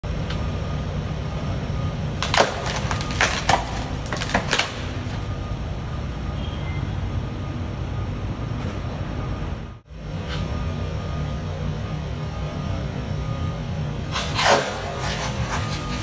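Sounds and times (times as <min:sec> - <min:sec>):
polystyrene foam crunching: 0:02.2 - 0:04.8.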